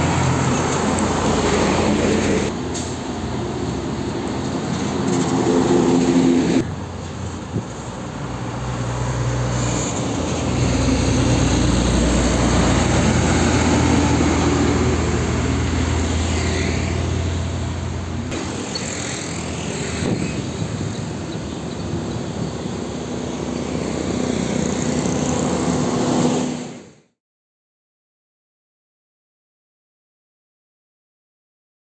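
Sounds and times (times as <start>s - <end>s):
diesel trucks driving past: 0.0s - 27.1s
tyres on the road: 0.0s - 27.1s.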